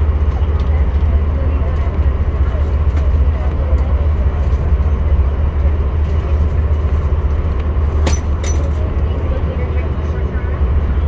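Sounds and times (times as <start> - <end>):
train rumble inside coach: 0.0 - 11.0.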